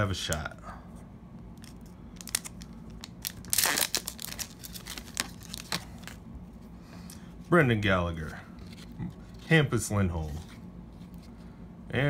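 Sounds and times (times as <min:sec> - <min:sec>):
foil wrapper crinkling and tearing: 0:01.6 - 0:06.2.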